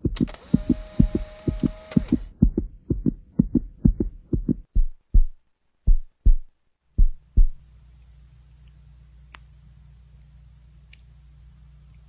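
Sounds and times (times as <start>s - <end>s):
heartbeat: 0.0s - 7.6s
faint low hum: 0.0s - 12.0s.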